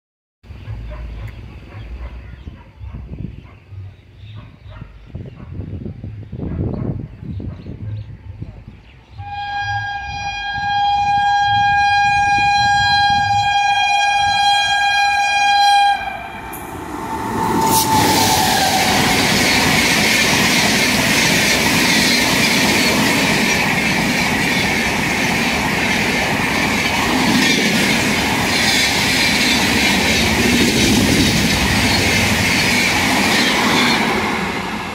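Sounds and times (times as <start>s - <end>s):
train horn blast: 9.2s - 20.0s
train coaches rushing past: 15.9s - 34.9s.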